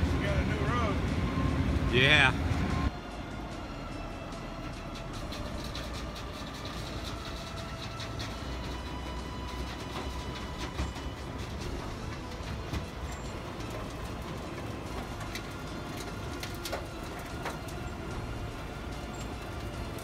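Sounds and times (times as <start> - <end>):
asphalt dropping into truck bed: 4.9 - 20.0.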